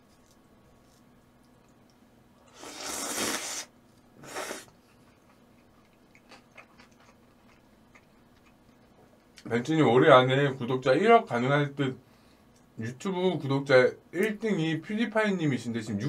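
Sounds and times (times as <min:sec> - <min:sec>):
eating noises: 0:02.6 - 0:09.5.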